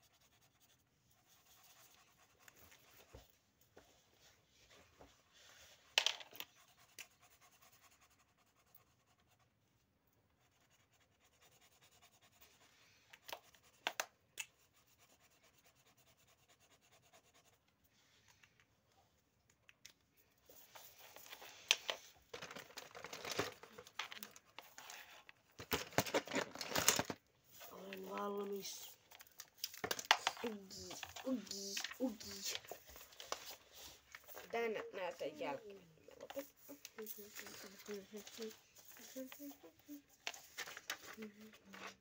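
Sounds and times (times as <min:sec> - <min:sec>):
markers scratching on paper: 0:00.0 - 0:03.4, 0:05.4 - 0:09.5, 0:10.3 - 0:17.8, 0:20.4 - 0:26.8, 0:27.5 - 0:42.0
paper rustling: 0:20.5 - 0:35.2, 0:36.2 - 0:42.0.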